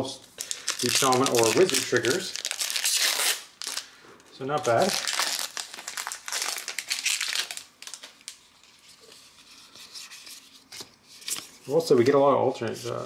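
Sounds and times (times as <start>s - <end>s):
card pack crinkling: 0.4s - 3.9s, 4.5s - 8.5s.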